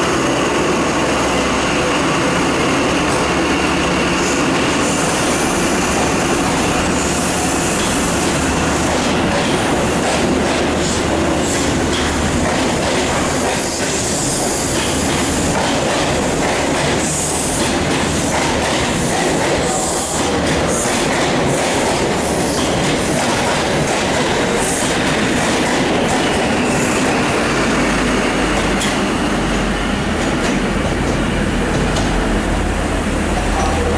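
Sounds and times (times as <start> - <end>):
train rumble: 0.0 - 33.9
train wheels clattering over rail joints: 7.7 - 27.2.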